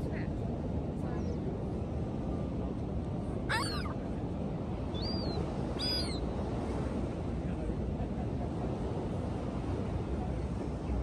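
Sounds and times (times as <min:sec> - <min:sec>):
waves: 0:00.0 - 0:11.0
wind: 0:00.0 - 0:11.0
gull calls: 0:03.5 - 0:03.9.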